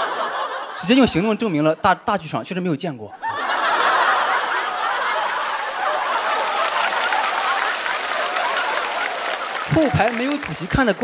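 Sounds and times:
audience laughing: 0.0 - 1.7, 3.1 - 11.0
audience applauding: 3.6 - 11.0.

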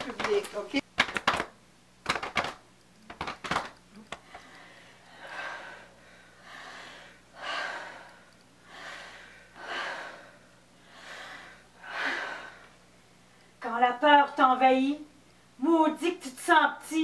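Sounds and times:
person breathing deeply: 4.2 - 12.8.

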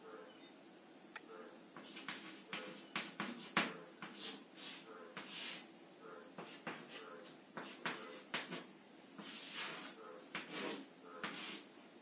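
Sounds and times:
chalk tapping on blackboard: 1.7 - 5.6, 6.4 - 11.7.

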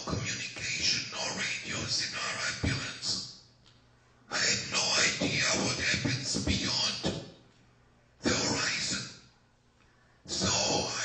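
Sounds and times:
person speaking: 0.0 - 3.2, 4.3 - 7.3, 8.2 - 9.1, 10.3 - 11.0.

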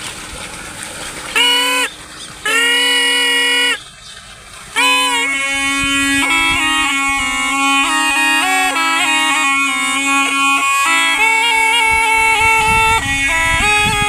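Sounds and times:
gourd pipe melody over drone: 1.2 - 14.0.

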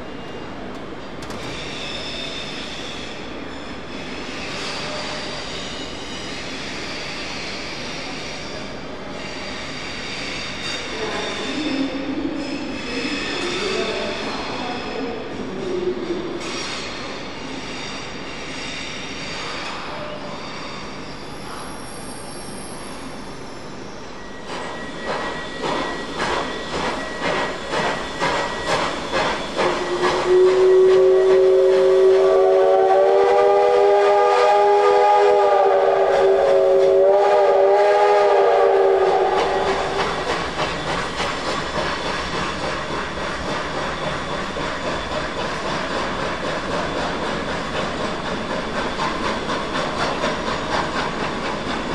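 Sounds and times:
steam locomotive exhaust chuffs: 24.2 - 51.9
steam whistle blast: 29.6 - 40.0.

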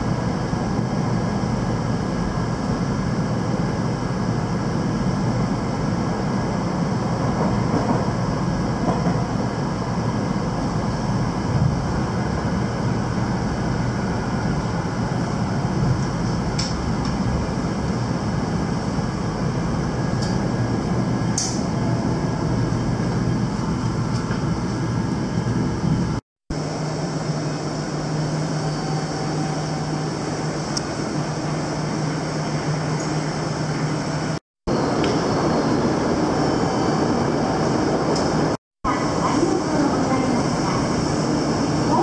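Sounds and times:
train rumbling: 0.0 - 42.0.

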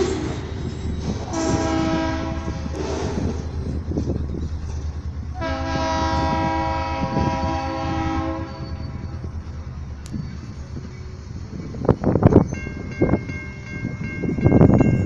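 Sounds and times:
freight train rumbling past: 0.0 - 15.0
train horn: 1.3 - 3.2, 5.4 - 9.1.

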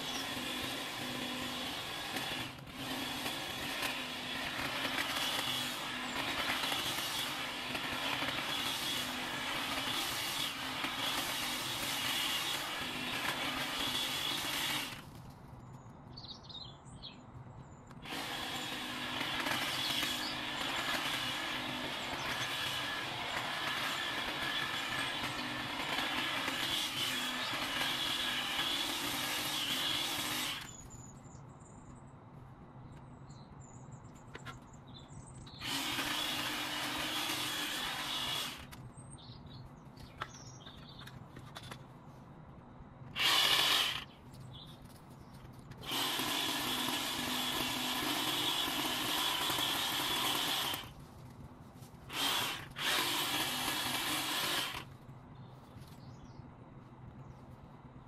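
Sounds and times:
birds chirping: 15.5 - 38.1, 38.7 - 41.4
electric power tool running: 18.1 - 30.7, 35.6 - 38.7, 43.2 - 44.0, 45.8 - 50.9, 52.1 - 54.9.

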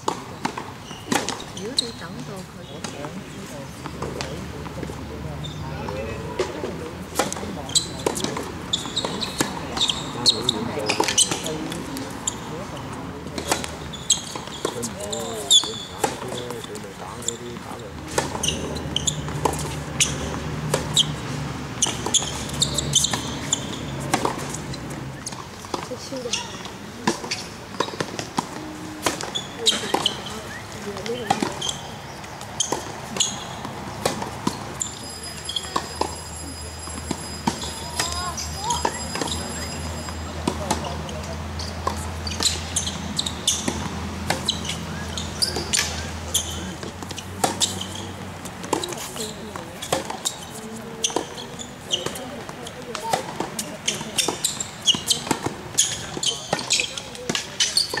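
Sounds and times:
tennis balls struck by rackets: 0.0 - 36.2, 36.9 - 58.0
sneakers squeaking on court: 0.0 - 58.0.

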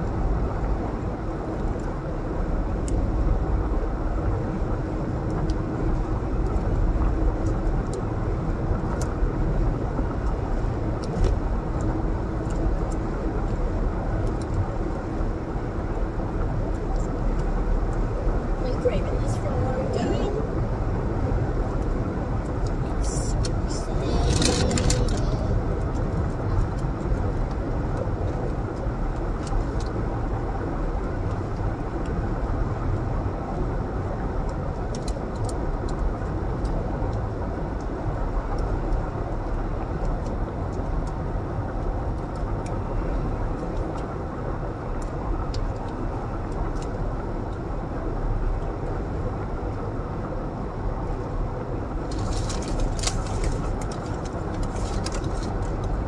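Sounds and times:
car idling inside cabin: 0.1 - 35.4
light crinkles and clicks: 24.2 - 28.5, 34.9 - 37.9, 52.1 - 56.0.

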